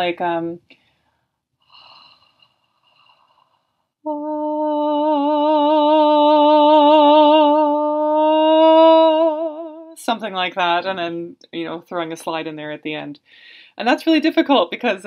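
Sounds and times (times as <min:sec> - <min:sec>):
woman singing held note with vibrato: 0:04.0 - 0:10.0.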